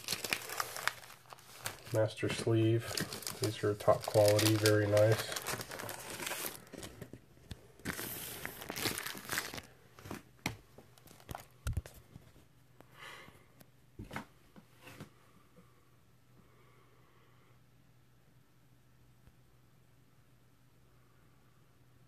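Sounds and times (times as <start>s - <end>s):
record sleeves rustling: 0.0s - 12.5s.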